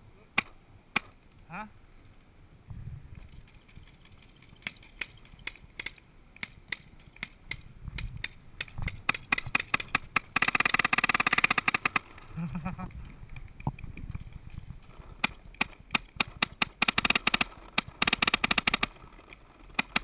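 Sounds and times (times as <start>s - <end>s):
paintball markers firing: 0.4s - 1.2s, 3.4s - 12.1s, 15.2s - 20.0s.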